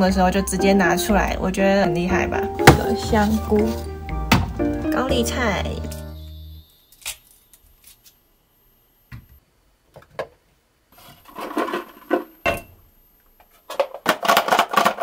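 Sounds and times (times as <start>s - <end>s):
knife chopping on cutting board: 2.6s - 4.5s
corn pieces clattering in plastic box: 13.7s - 15.0s.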